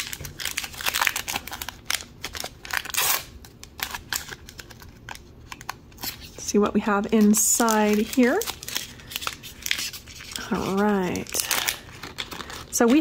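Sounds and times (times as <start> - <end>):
plastic wrapper crinkling and tearing: 0.0 - 13.0.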